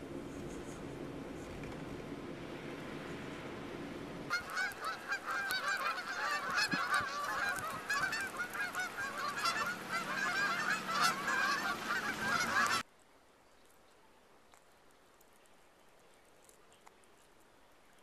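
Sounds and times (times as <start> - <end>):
geese honking: 4.3 - 12.8.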